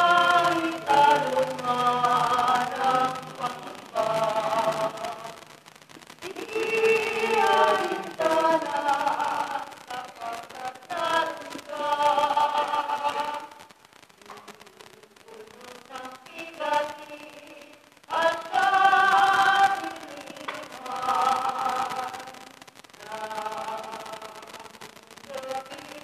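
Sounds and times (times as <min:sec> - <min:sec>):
choir singing a hymn: 0:00.0 - 0:05.2, 0:06.4 - 0:13.5, 0:18.1 - 0:22.1.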